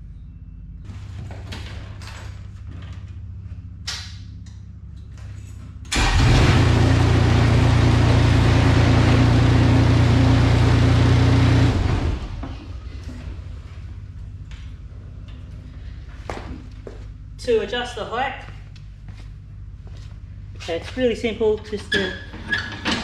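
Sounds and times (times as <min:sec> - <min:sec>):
ride-on flail mower running: 0:06.0 - 0:12.4.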